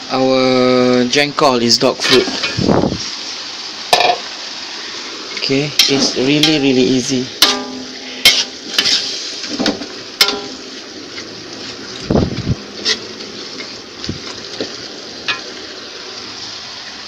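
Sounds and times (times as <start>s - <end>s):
frying sizzle: 0.0s - 17.0s
metal spatula scraping a wok: 7.4s - 9.5s, 12.7s - 14.4s.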